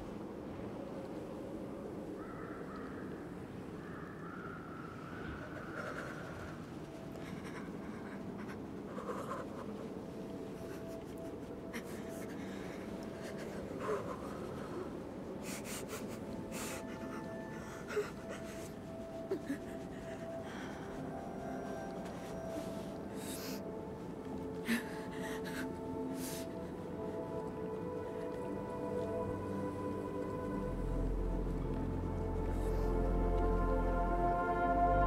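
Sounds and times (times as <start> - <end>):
low ambient hum: 0.0 - 35.0
boy's shaky breaths: 5.5 - 27.3.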